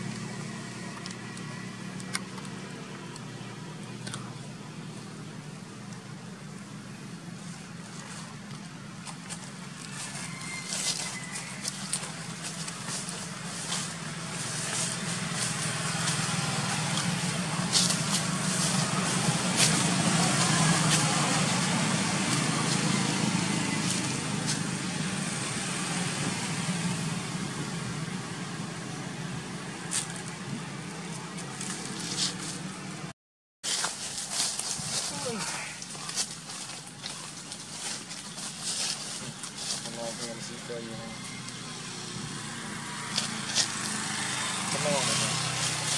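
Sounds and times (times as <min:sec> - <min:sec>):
vehicle engine hum: 0:00.0 - 0:45.9
rustles: 0:05.8 - 0:26.4, 0:29.8 - 0:45.9.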